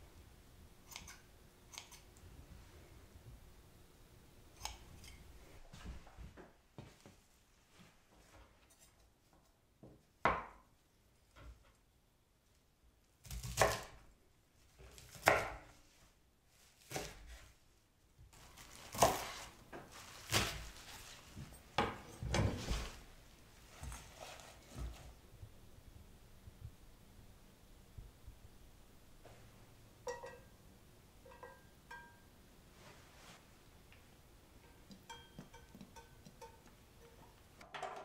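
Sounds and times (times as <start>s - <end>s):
knife cutting stems on wooden board: 13.2s - 14.0s, 14.8s - 15.6s, 18.9s - 19.4s.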